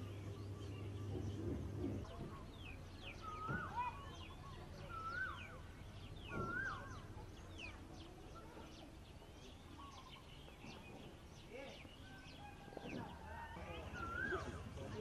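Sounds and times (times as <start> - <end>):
birds chirping: 0.0 - 15.0
bird whistling phrases: 3.0 - 7.8, 13.3 - 14.8.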